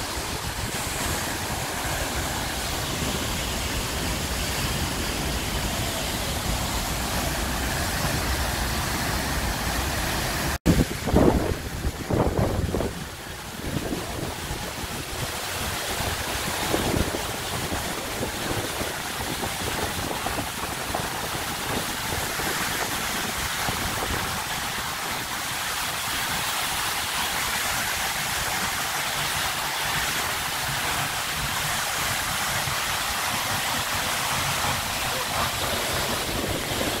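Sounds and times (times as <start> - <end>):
waterfall rushing: 0.0 - 37.0
wind buffeting microphone: 10.6 - 25.0, 33.7 - 37.0.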